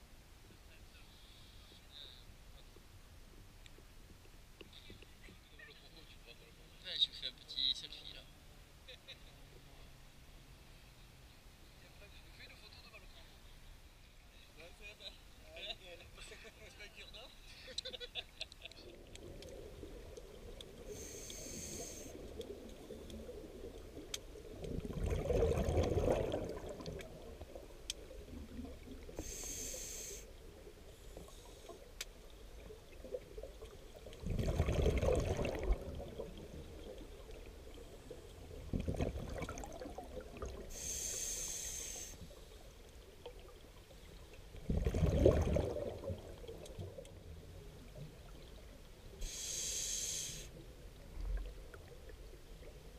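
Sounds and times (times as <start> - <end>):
exhaled bubbles: 18.8 - 41.0, 44.5 - 48.6
regulator inhalation hiss: 20.9 - 22.2, 29.2 - 30.4, 40.7 - 42.4, 49.2 - 50.6.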